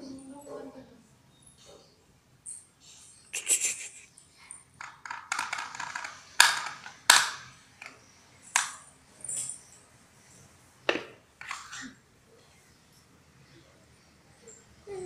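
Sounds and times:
hands and bangles tapping floor: 4.8 - 9.6.

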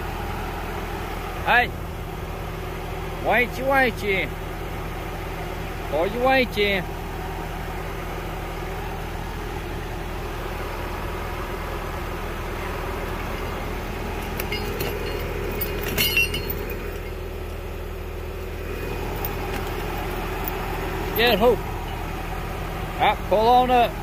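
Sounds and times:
diesel engine running: 0.0 - 24.0
metallic clinks: 13.3 - 17.6, 18.8 - 22.2.

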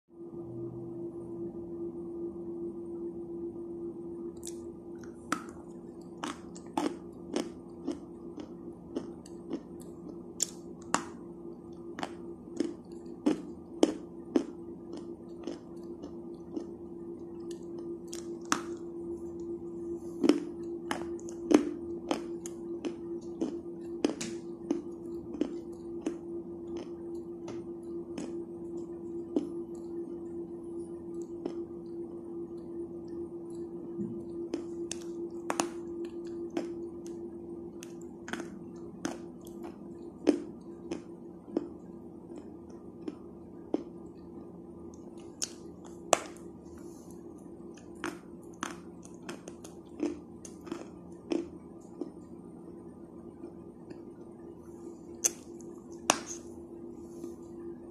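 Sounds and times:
chalk crunching in mouth: 55.2 - 56.5.

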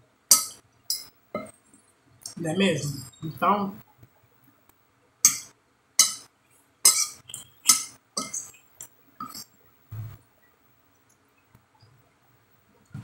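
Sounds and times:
fork clinking on glass plate: 6.9 - 8.6.

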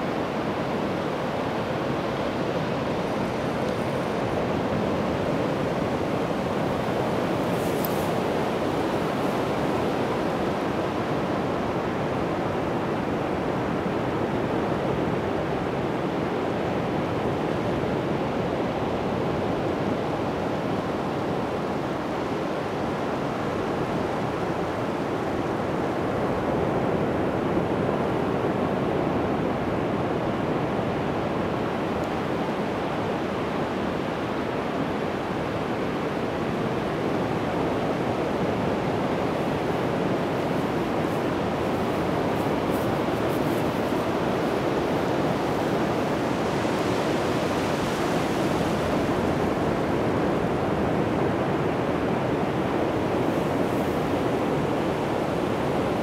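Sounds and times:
waves breaking on beach: 18.9 - 56.0.

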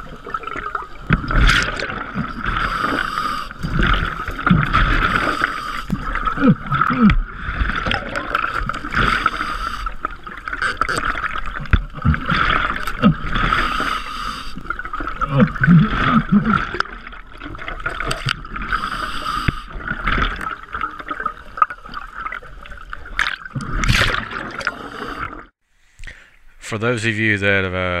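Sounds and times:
diver breathing through regulator: 2.5 - 3.6, 4.9 - 6.0, 8.8 - 10.0, 13.4 - 14.6, 18.7 - 19.7.

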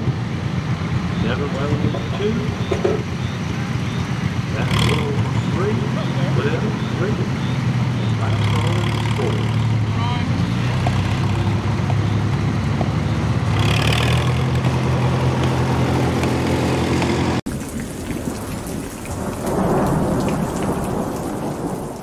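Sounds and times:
rain hissing: 0.0 - 9.9, 14.6 - 22.0
tractor engine running hard: 0.0 - 17.5
rumbling thunder: 17.7 - 22.0.

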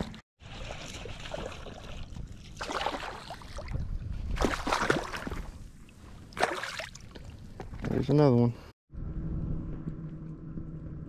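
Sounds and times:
fish thrashing and splashing: 6.4 - 7.4.

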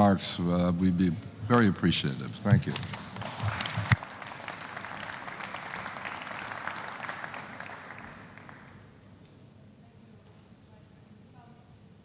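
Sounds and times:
audience applauding: 2.8 - 8.9.

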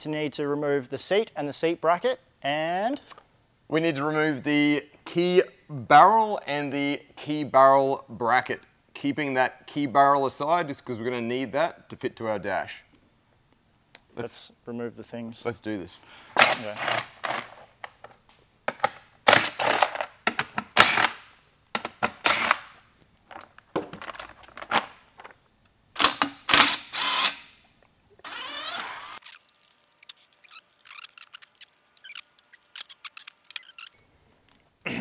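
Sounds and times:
cordless power driver running: 26.5 - 27.4, 28.2 - 29.2.

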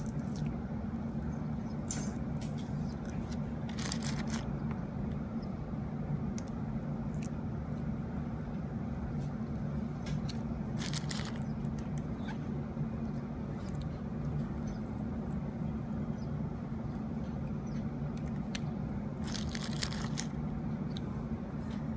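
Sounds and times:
steady low hum: 0.0 - 21.9
adhesive tape crinkling: 1.8 - 4.8, 10.0 - 12.0, 19.2 - 20.4.

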